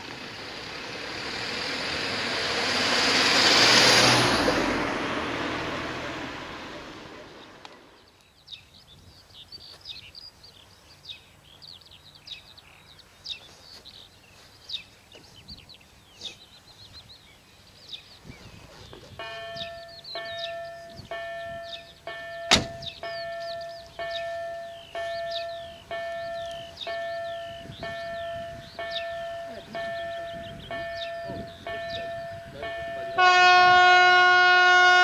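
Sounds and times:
small birds chirping: 7.4 - 33.1
level crossing electronic bell: 19.2 - 33.2
sharp knock: 22.5 - 22.9.

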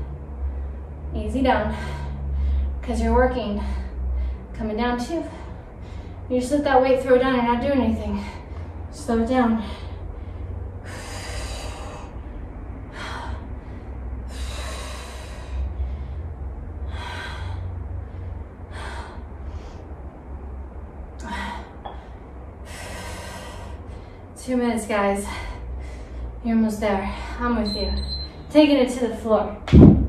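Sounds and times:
woman breathing hard: 0.0 - 2.8, 3.5 - 4.6, 5.2 - 6.3, 9.5 - 24.4, 25.2 - 26.4.

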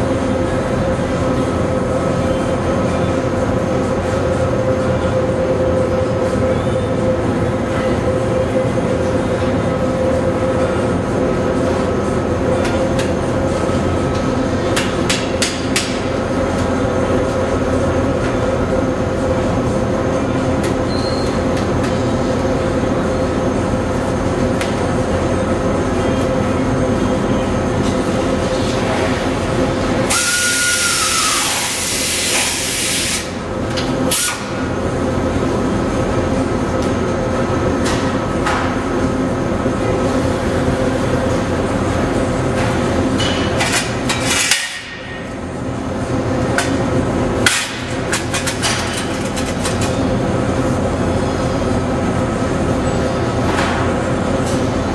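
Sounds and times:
workshop drone with hum: 0.0 - 54.9
compressed air hissing: 30.1 - 33.3.

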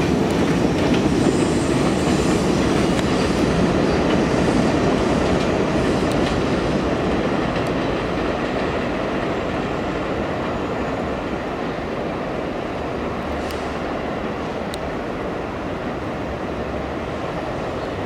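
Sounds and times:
subway train on elevated track: 0.0 - 18.0.

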